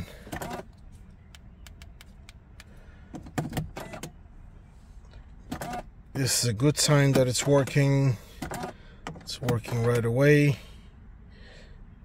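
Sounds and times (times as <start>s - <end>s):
ignition switch clicks: 1.2s - 4.2s, 6.9s - 10.2s.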